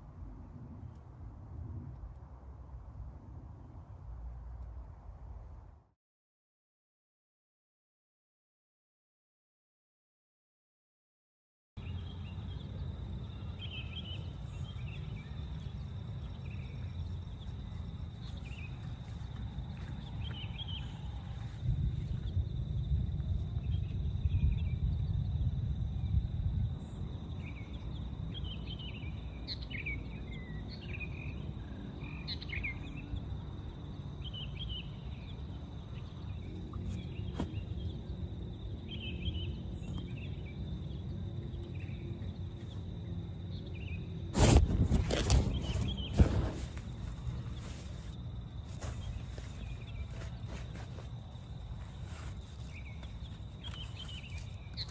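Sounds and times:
birds chirping: 11.8s - 22.2s, 44.9s - 54.9s
high insect drone: 11.9s - 30.2s, 32.2s - 54.9s.

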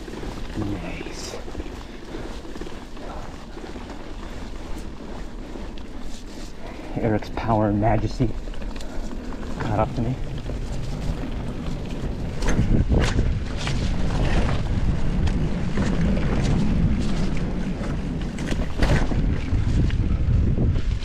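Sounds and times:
wind buffeting microphone: 0.0s - 21.0s
bike knocks and rattles: 7.8s - 21.0s.

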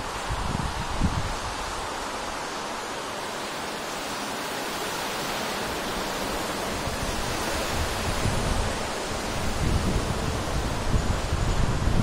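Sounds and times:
wind buffeting microphone: 0.0s - 2.4s, 5.6s - 12.0s
wind blowing: 0.0s - 12.0s.

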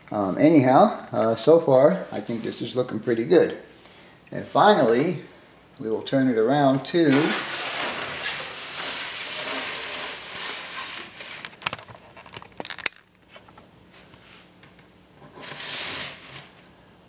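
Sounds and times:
plastic scraping across workbench: 7.0s - 12.3s, 15.2s - 16.7s.

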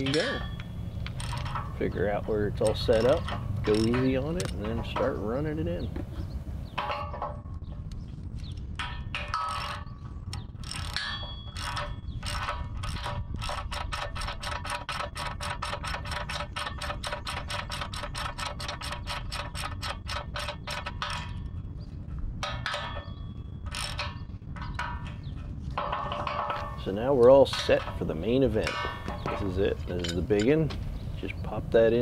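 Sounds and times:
ratchet wrench clicking: 0.0s - 1.8s, 2.4s - 5.0s, 8.8s - 21.5s, 22.4s - 24.9s.

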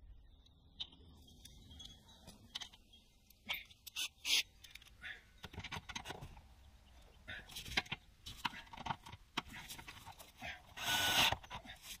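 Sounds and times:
hand tools tapping and scraping: 0.8s - 12.0s.

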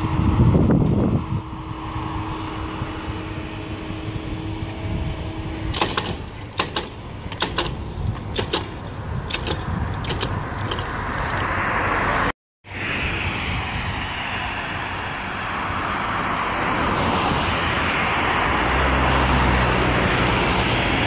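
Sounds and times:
rush of approaching train: 0.0s - 5.9s, 11.0s - 21.0s
barrier drive humming: 0.0s - 21.0s.

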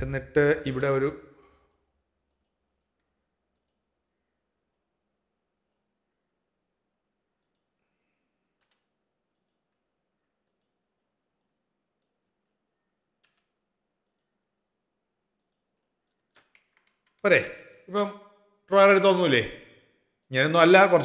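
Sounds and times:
faint computer mouse clicks: 1.6s - 3.9s, 7.4s - 7.8s, 8.6s - 9.6s, 13.2s - 14.4s.

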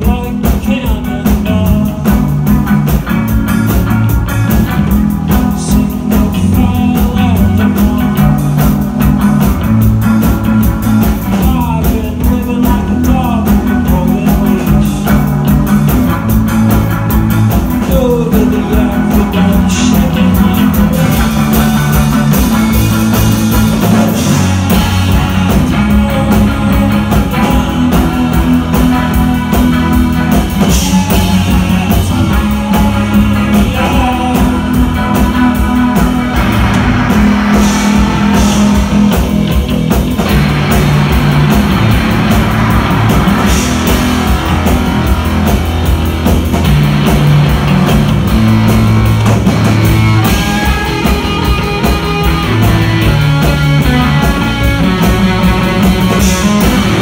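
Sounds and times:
person singing: 0.0s - 2.4s, 5.3s - 8.7s, 11.1s - 15.4s, 17.8s - 23.4s, 24.1s - 36.3s
live rock band playing: 0.0s - 57.0s.

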